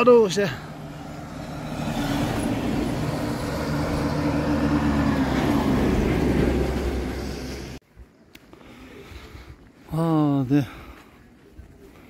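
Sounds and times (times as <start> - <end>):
tyre and road noise: 0.0 - 7.8
bus engine passing: 0.3 - 7.8.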